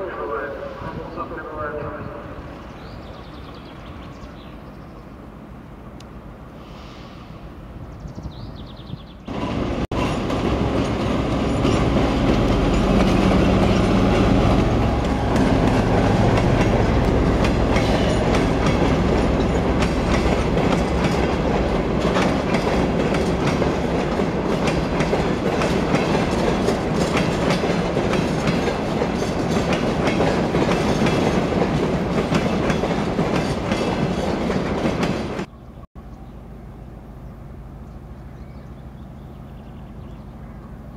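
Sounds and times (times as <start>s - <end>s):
diesel locomotive engines: 0.0s - 40.9s
train wheels clattering over rail joints: 9.4s - 35.5s.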